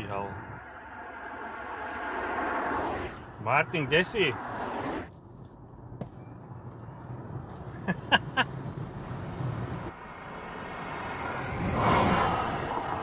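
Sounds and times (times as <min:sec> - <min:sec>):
steady low hum: 0:00.0 - 0:03.5
car passing by: 0:00.0 - 0:05.1, 0:09.0 - 0:13.0.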